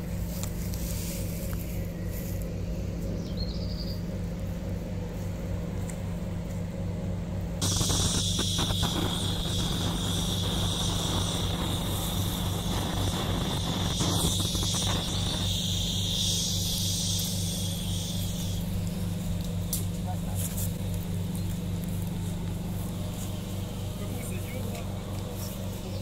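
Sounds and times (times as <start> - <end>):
low electrical hum: 0.0 - 26.0
high-pitched hiss: 7.6 - 20.8.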